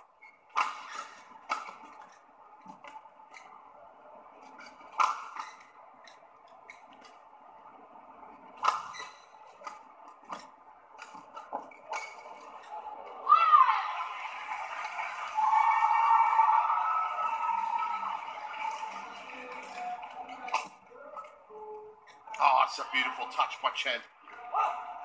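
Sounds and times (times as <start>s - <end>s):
steady hall hiss: 0.0s - 20.6s
rackets hitting shuttlecock: 4.6s - 6.2s.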